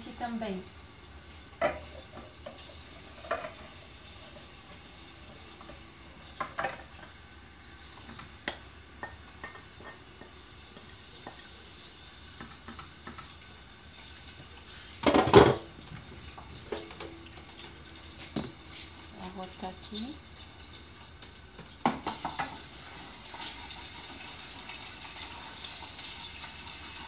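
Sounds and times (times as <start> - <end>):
garlic sizzling in a pot: 0.0 - 27.0.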